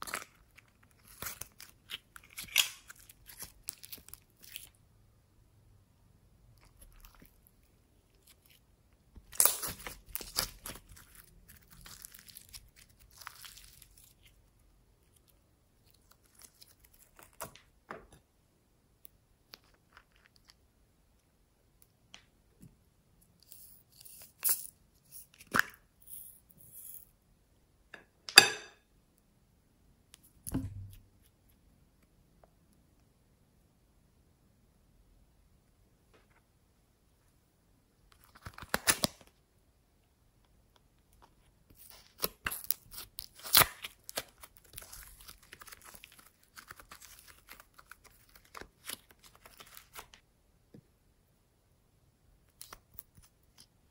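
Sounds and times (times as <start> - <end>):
slime crackling and popping: 9.2 - 14.4, 41.8 - 50.2
soft thump: 30.5 - 31.0.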